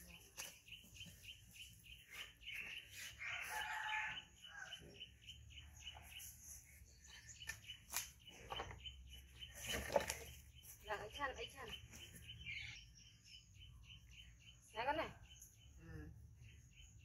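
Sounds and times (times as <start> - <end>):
rooster crowing: 3.2 - 4.8.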